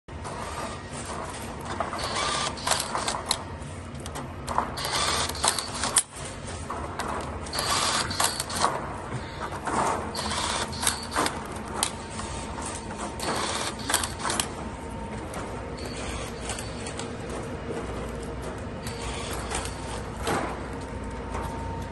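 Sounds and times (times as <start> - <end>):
rebar tying tool motor whir: 0.3 - 3.4, 4.0 - 6.3, 7.2 - 8.8, 9.8 - 14.8, 15.7 - 21.9
tool mechanical clicking: 4.0 - 6.1, 10.1 - 12.0.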